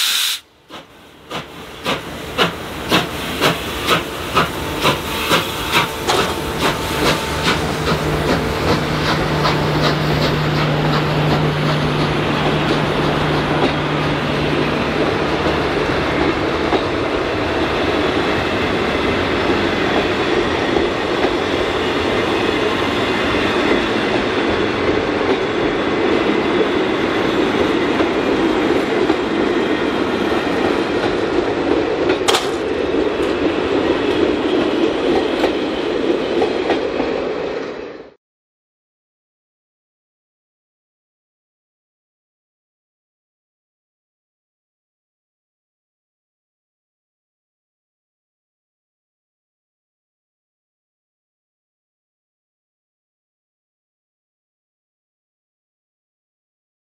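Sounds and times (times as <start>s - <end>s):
steam locomotive exhaust chuffs: 0.0s - 17.0s.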